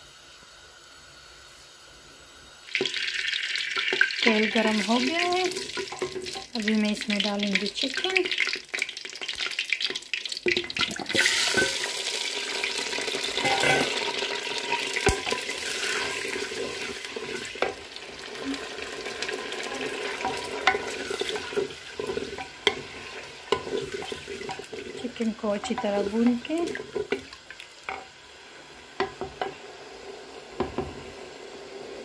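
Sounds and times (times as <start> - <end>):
meat sizzling in hot oil: 0.0 - 32.0
wooden spoon stirring: 4.2 - 6.6, 15.0 - 17.8, 18.4 - 28.1
spoon knocking clay pot: 20.1 - 24.9.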